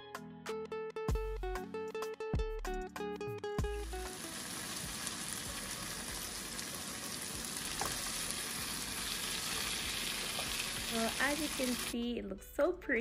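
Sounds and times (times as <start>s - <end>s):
chicken sizzling in oil: 3.6s - 12.0s
wooden spoon turning food: 7.7s - 11.7s.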